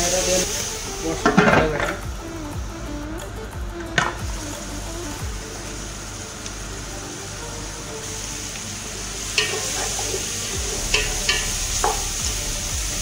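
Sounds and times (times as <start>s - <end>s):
food sizzling in a pot: 0.0s - 13.0s
utensil scraping against a pot: 9.3s - 12.2s.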